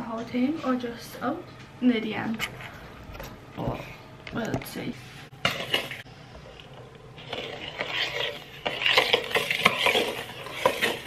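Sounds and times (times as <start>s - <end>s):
fork scraping a bowl: 7.2s - 11.0s.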